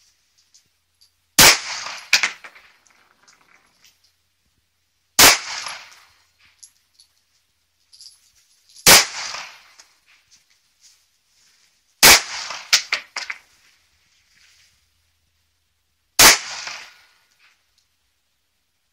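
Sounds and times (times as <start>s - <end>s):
pistol shots with echo: 1.4s - 2.4s, 5.2s - 6.0s, 8.8s - 9.7s, 12.0s - 13.0s, 16.2s - 17.0s
quieter sharp cracks: 1.4s - 3.9s, 5.2s - 6.2s, 8.8s - 10.0s, 12.0s - 13.5s, 16.2s - 17.6s.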